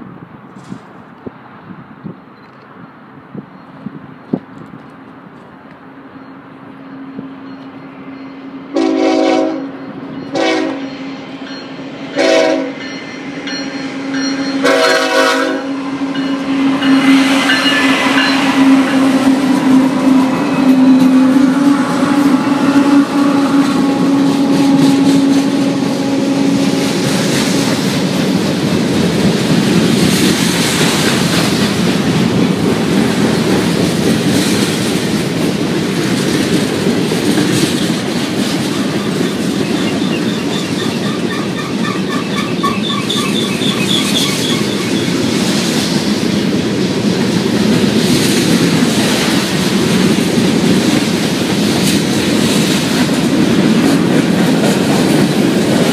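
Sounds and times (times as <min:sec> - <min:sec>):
train wheels rumbling on rails: 0:00.0 - 0:55.9
high pulsing wheel squeal: 0:06.2 - 0:08.8, 0:09.5 - 0:27.9, 0:38.6 - 0:45.4.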